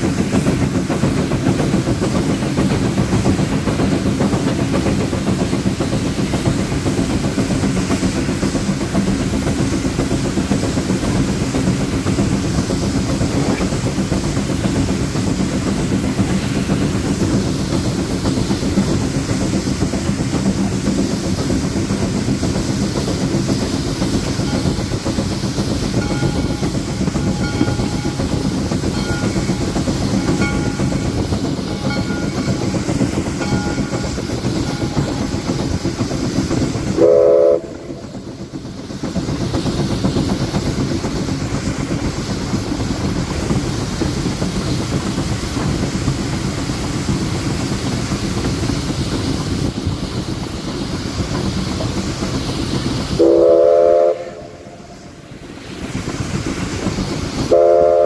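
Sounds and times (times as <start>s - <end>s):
steam locomotive rumbling: 0.0s - 58.0s
steam whistle blast: 37.0s - 38.0s, 53.2s - 54.9s, 57.5s - 58.0s.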